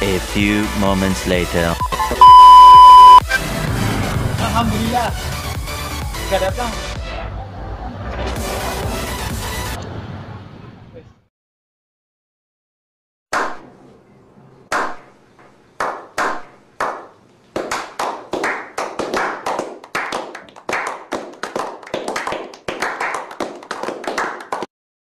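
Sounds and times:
hands clapping: 0:15.8 - 0:24.7.

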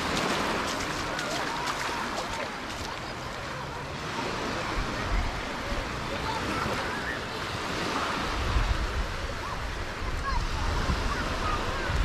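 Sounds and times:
distant voices: 0:00.0 - 0:12.0
surf washing onto beach: 0:00.0 - 0:12.0
wind buffeting microphone: 0:07.8 - 0:12.0.

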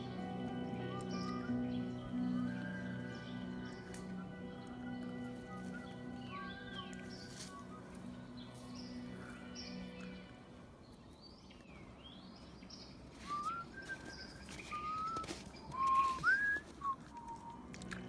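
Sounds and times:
slow whistled tune: 0:13.2 - 0:18.0.

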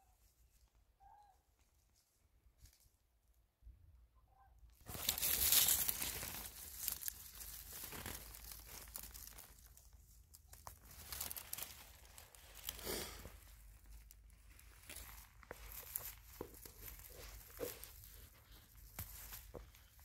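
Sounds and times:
rustling and crinkling: 0:04.8 - 0:20.0.

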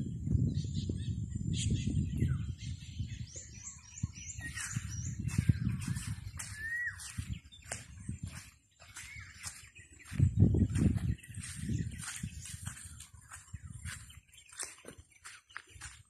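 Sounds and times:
low rumble on microphone: 0:00.0 - 0:08.5, 0:10.1 - 0:14.2
birds chirping: 0:00.0 - 0:16.0.

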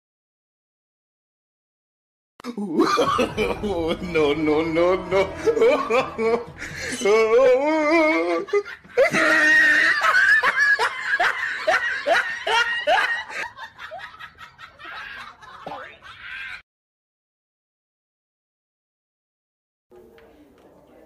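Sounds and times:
person laughing: 0:02.4 - 0:16.6.

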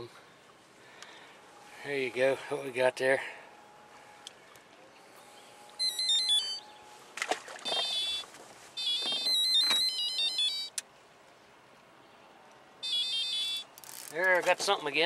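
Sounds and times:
electronic beeping jingle: 0:05.8 - 0:06.6, 0:07.7 - 0:08.2, 0:08.8 - 0:10.7, 0:12.8 - 0:13.6.

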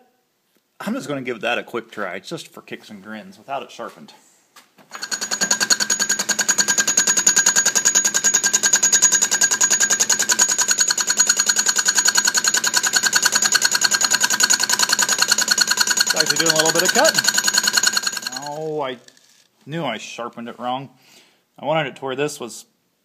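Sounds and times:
lathe whining: 0:04.9 - 0:18.7
fly cutter ticking: 0:05.0 - 0:18.6.

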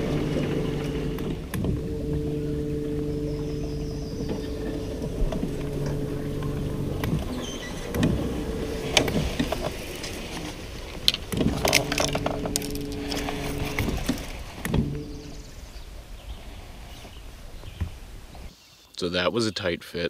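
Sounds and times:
boat knocking and scraping: 0:00.0 - 0:18.5
boat motor humming: 0:00.0 - 0:18.5.

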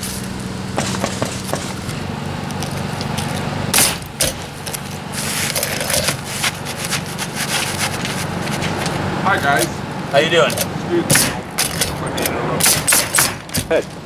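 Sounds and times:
shingles scraping and rustling: 0:00.0 - 0:03.5, 0:04.1 - 0:09.0
low engine hum: 0:00.0 - 0:12.6
pneumatic nailer firing: 0:03.7 - 0:04.5, 0:11.1 - 0:11.9, 0:12.6 - 0:13.8.

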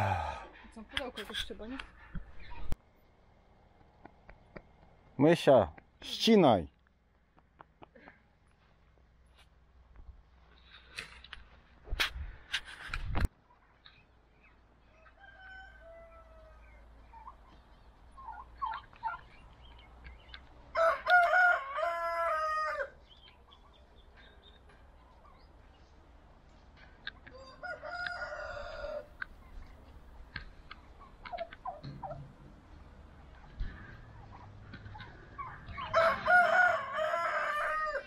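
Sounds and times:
rooster crowing: 0:00.0 - 0:00.5, 0:15.0 - 0:16.7, 0:20.7 - 0:23.0, 0:27.3 - 0:29.1, 0:35.8 - 0:38.0
soft poultry calls: 0:13.4 - 0:25.8, 0:27.0 - 0:38.0.

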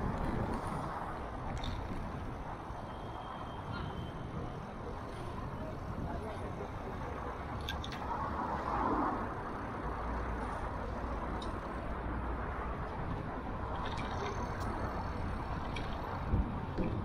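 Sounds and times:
wind rush: 0:00.0 - 0:02.7, 0:08.1 - 0:17.0
tyres rolling on asphalt: 0:00.0 - 0:17.0.

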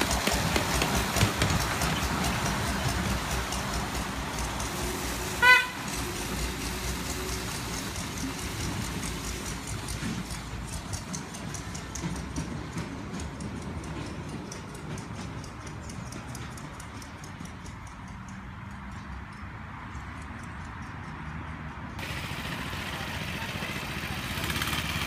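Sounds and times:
small locomotive engine running: 0:00.0 - 0:25.0
locomotive horn toot: 0:05.2 - 0:06.4.

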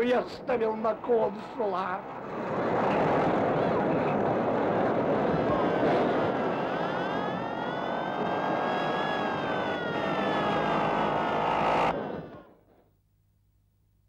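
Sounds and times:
racing car engine whining: 0:02.0 - 0:12.6.

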